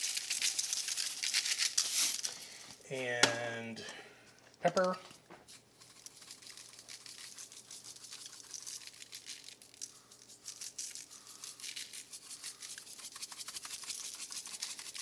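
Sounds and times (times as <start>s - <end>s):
pepper grinder grinding: 0.0s - 2.7s, 4.5s - 15.0s.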